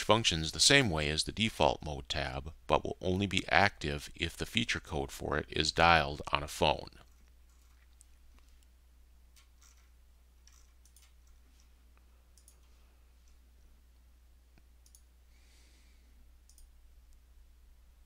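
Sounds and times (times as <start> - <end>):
low steady hum: 0.0 - 18.0
faint computer mouse clicks: 12.4 - 13.4, 14.6 - 15.1, 16.5 - 16.7.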